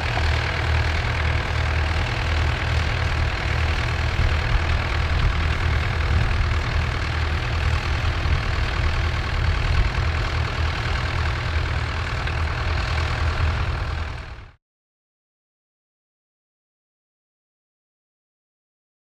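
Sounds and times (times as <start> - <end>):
tractor engine pulsing: 0.0 - 14.6.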